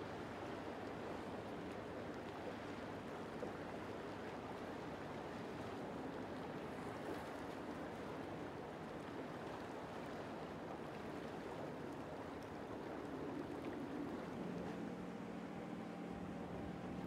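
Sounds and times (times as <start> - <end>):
rushing water: 0.0 - 14.9
wind: 0.0 - 17.0
boat engine humming: 11.2 - 17.0.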